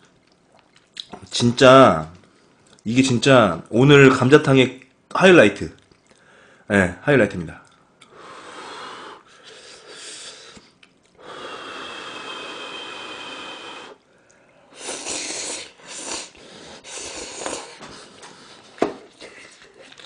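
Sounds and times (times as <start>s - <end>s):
noodles being slurped: 14.7s - 20.0s.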